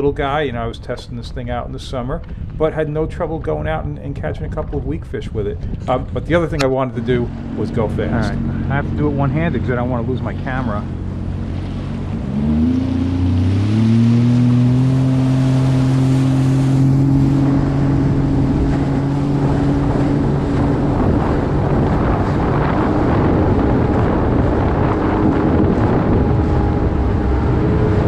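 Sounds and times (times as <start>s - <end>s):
wind on microphone: 0.0s - 28.0s
watercraft engine accelerating: 5.2s - 28.0s
rushing water: 5.9s - 28.0s.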